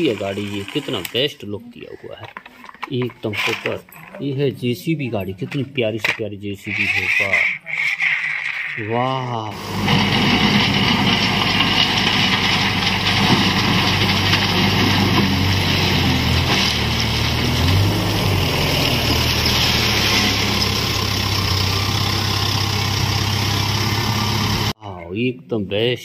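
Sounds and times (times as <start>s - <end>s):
bucket pushing crushed stone: 0.0s - 1.3s, 9.6s - 21.4s
diesel engine running: 9.5s - 24.8s.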